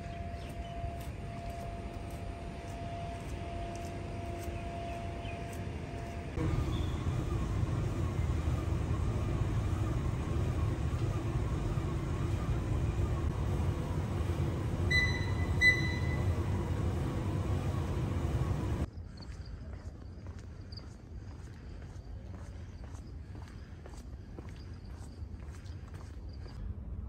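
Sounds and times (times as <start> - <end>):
steady hum: 0.8 - 18.9
cross-trainer mechanical rumble: 6.2 - 18.9
short electronic beeps: 14.8 - 17.2.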